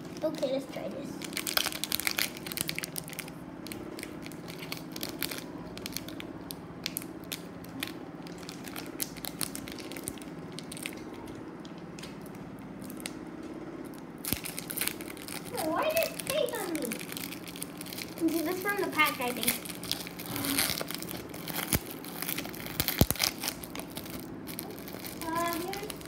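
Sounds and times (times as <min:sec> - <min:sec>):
foil wrapper crinkling and tearing: 0:00.0 - 0:11.3, 0:13.9 - 0:26.0
low steady hum: 0:00.0 - 0:26.0.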